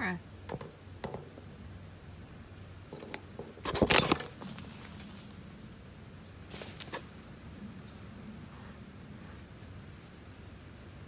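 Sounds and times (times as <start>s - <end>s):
fur rustling against microphone: 3.6s - 5.6s, 6.4s - 7.2s.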